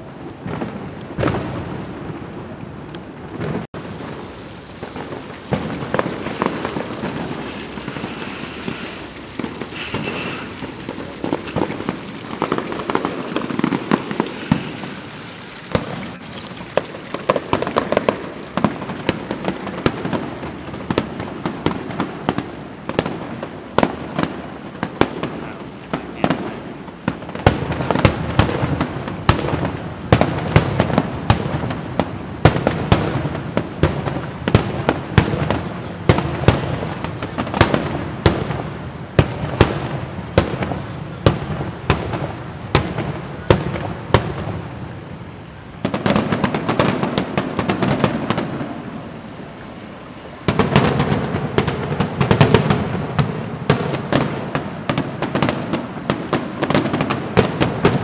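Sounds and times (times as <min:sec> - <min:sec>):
fireworks bursting: 0:00.0 - 0:58.0
rolling rumble: 0:00.4 - 0:24.5.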